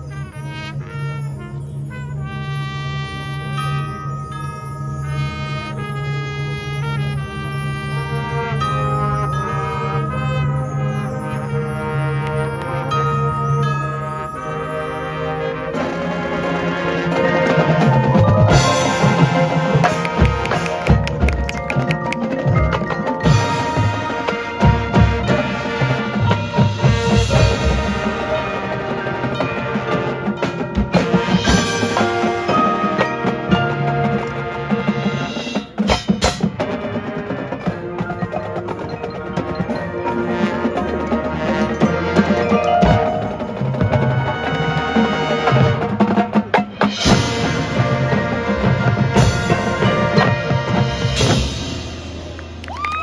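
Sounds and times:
brass chords: 0.0s - 52.6s
drums: 0.0s - 53.0s
mallet percussion: 0.0s - 53.0s
marching band playing: 0.0s - 53.0s
drum hits: 17.9s - 28.2s
wood-block strikes: 17.9s - 28.4s, 37.7s - 45.5s.

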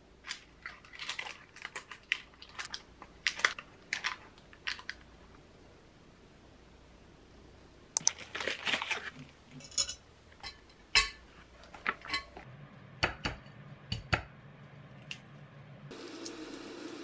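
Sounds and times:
dishes and utensils clinking: 9.5s - 11.3s, 11.9s - 12.4s.

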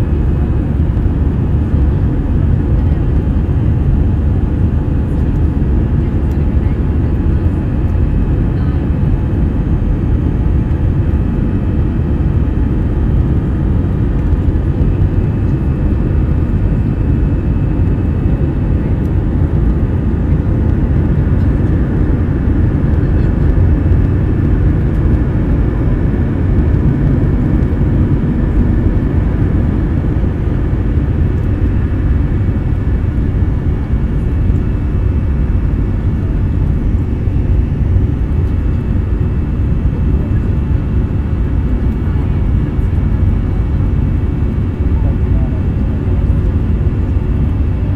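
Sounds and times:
jet engine cabin rumble: 0.0s - 47.9s.

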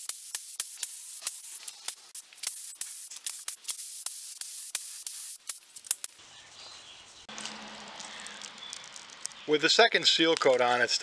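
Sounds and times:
spray gun hissing: 0.0s - 6.2s.

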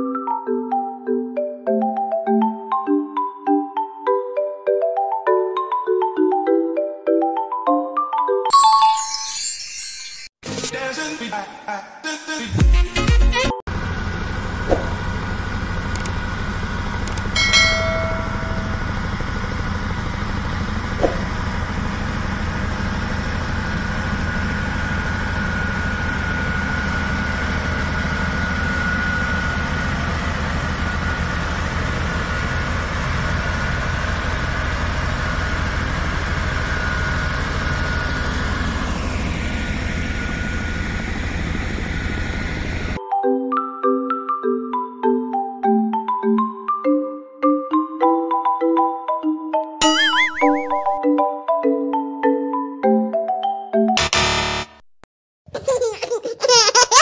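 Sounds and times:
short high tone: 8.5s - 10.3s, 49.8s - 51.0s
diesel engine rumbling: 13.7s - 43.0s.

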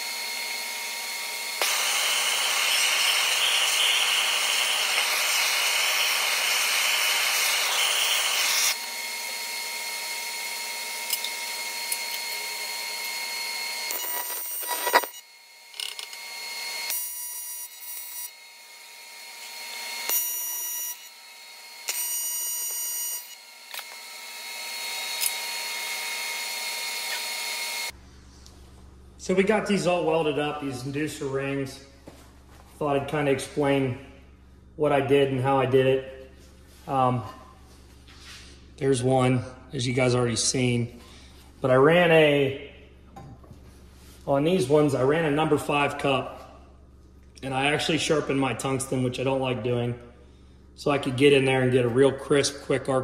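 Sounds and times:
welder arc buzzing: 0.0s - 28.0s
gas torch hissing: 1.6s - 8.8s.

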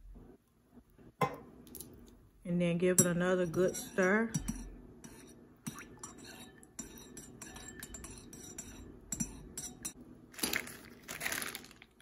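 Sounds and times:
spoon clinking against ceramic bowl: 3.0s - 10.0s.

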